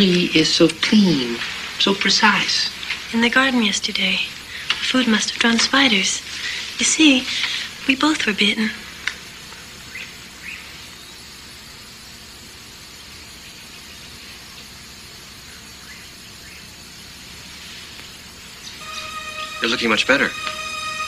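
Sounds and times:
background hiss: 0:00.0 - 0:21.0
faint rising chirps: 0:18.8 - 0:21.0.

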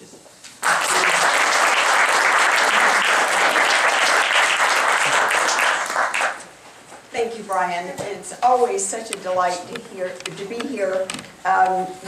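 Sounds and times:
audience applauding: 0:00.6 - 0:06.4.

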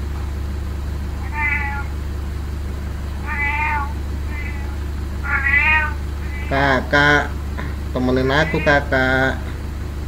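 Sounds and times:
steady low hum: 0:00.0 - 0:10.0
cat meowing: 0:01.2 - 0:02.0, 0:03.2 - 0:07.3, 0:08.2 - 0:09.0.

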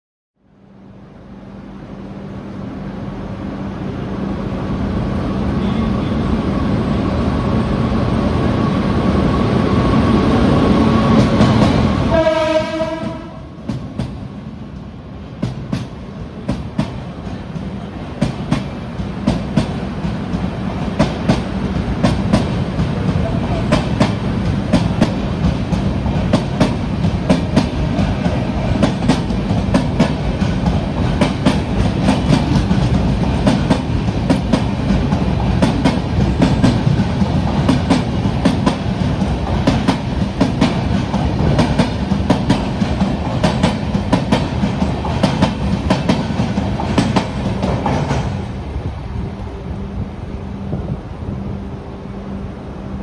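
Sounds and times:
train rumble in tunnel: 0:00.4 - 0:53.0
train horn blast: 0:05.5 - 0:06.4, 0:12.0 - 0:13.6
train wheels clacking over rail joints: 0:15.4 - 0:48.5.

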